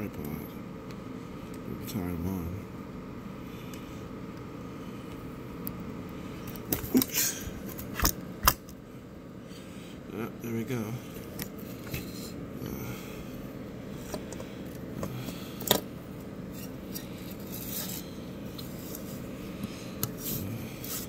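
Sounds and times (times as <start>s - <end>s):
low steady hum: 0.0s - 21.0s
plastic parts rubbing: 16.5s - 19.2s.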